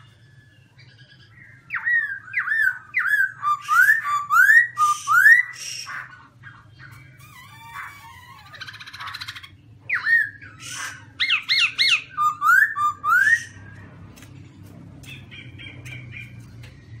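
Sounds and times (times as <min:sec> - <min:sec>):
bird singing whistled phrases: 0:00.8 - 0:05.9, 0:09.9 - 0:13.6
bird chattering notes: 0:00.9 - 0:13.8.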